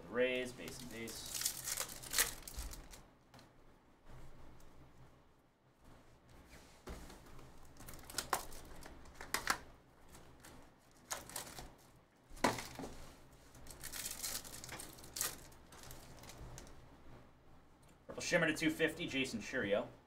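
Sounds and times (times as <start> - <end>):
foil pack crinkling: 0.5 - 3.0, 7.6 - 11.8, 13.5 - 16.7
card pack ripping: 0.6 - 3.0, 7.7 - 9.6, 10.2 - 11.7, 13.6 - 16.7.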